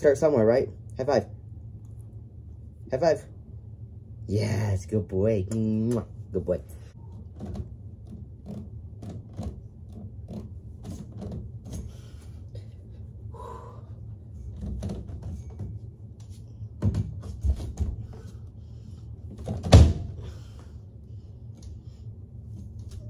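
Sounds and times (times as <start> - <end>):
pull-up bar knocking and creaking: 7.0 - 12.2, 14.4 - 15.9.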